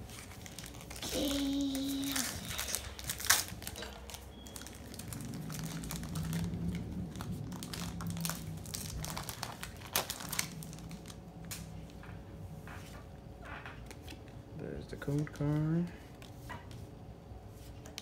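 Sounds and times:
foil wrapper crinkling: 0.0 - 11.7.

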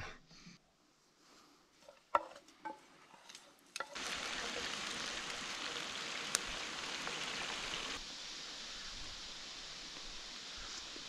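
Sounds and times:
meat sizzling in a pan: 3.8 - 11.0.

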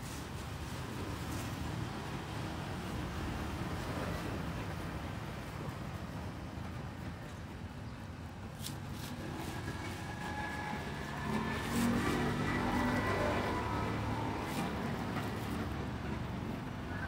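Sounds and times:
road traffic rumble: 0.0 - 17.0
vehicle engine: 8.6 - 17.0.

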